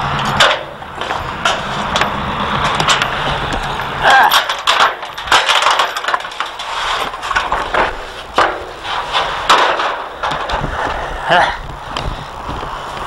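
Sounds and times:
metal gate clanking shut: 0.2s - 10.6s.

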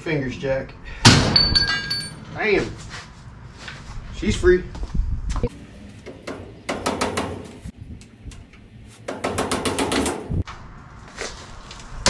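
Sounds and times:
hammer striking steel: 6.0s - 7.6s.

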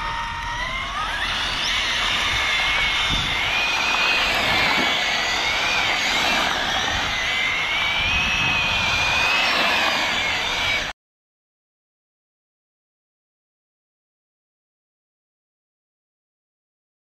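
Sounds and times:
rc car electric motor whining: 0.0s - 10.9s
tyres rushing on asphalt: 0.4s - 10.9s.

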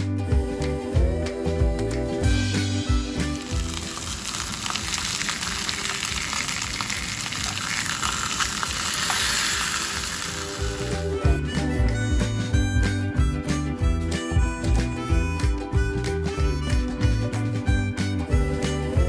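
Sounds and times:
background music: 0.0s - 19.0s
sausages sizzling in oil: 2.6s - 11.2s.

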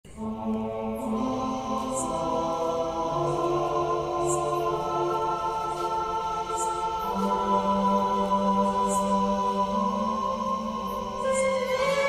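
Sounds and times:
slow sustained chords: 0.1s - 12.0s.

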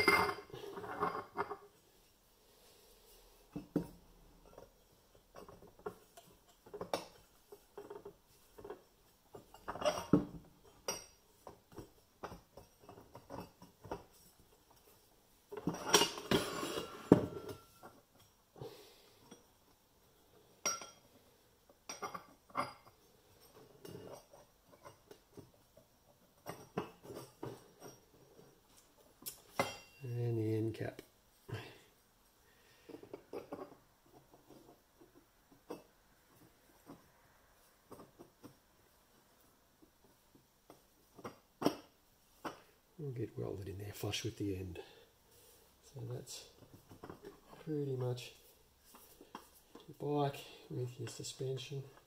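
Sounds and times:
metal clinks and knocks: 0.0s - 1.8s, 3.5s - 18.5s, 20.6s - 30.0s, 32.9s - 38.9s, 45.8s - 49.9s.

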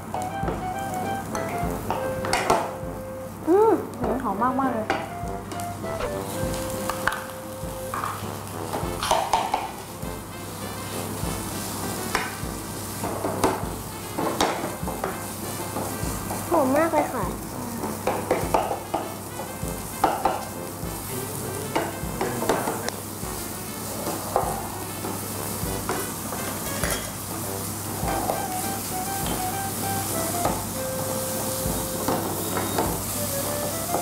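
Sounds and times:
meat sizzling in a frying pan: 0.0s - 34.0s.

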